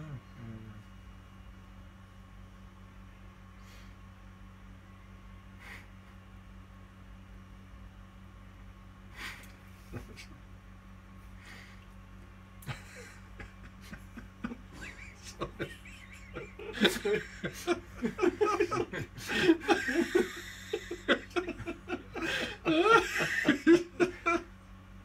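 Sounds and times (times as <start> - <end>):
people laughing: 9.8 - 10.4, 12.6 - 24.5.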